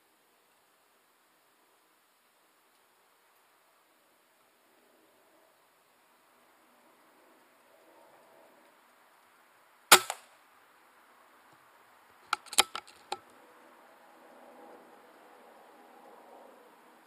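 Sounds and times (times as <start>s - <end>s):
air rifle shot crack: 9.9s - 10.3s
sharp clicks: 12.3s - 13.2s.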